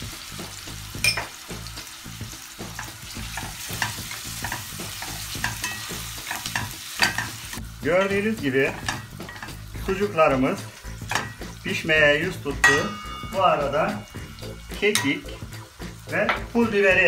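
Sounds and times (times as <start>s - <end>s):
sausage sizzling in hot oil: 0.0s - 17.0s
spoon scraping a pan: 2.7s - 9.7s, 10.8s - 11.8s.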